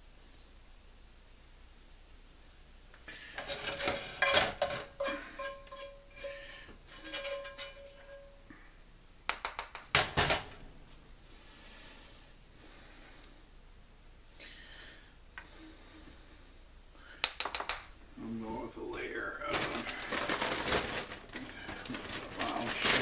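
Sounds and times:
metal spoon scraping metal pan: 0:03.4 - 0:08.4.

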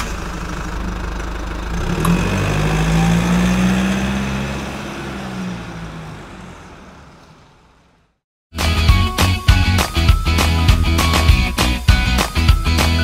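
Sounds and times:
vehicle engine revving: 0:00.0 - 0:08.2.

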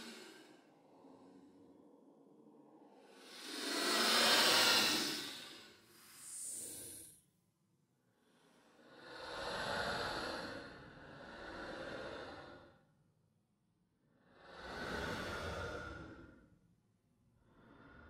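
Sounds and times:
ghostly breathy sighing: 0:03.1 - 0:07.1.

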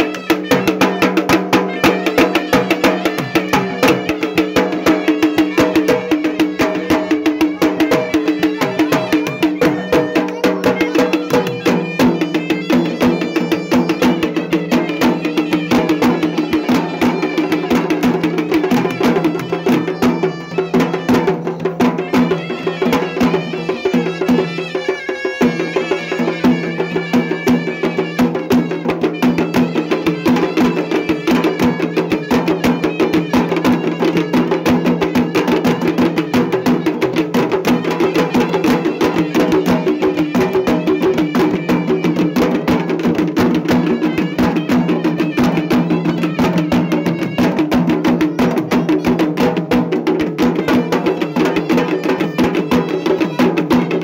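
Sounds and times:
procession drums playing fast: 0:00.0 - 0:54.0.

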